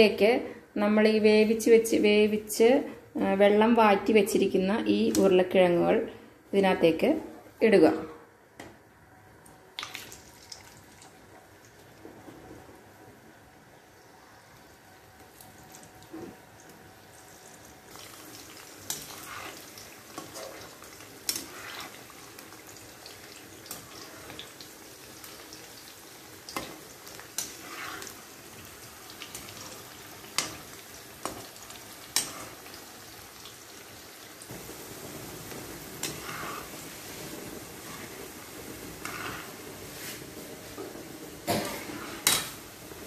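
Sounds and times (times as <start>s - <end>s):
potatoes sizzling in oil: 14.2s - 43.0s.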